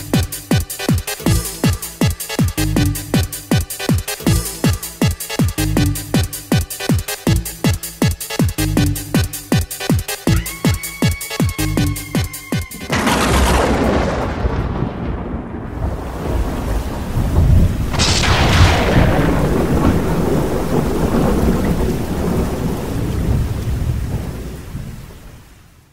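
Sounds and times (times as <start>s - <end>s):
steady rain: 0.0s - 25.9s
thunder clap with rumble: 12.8s - 25.4s.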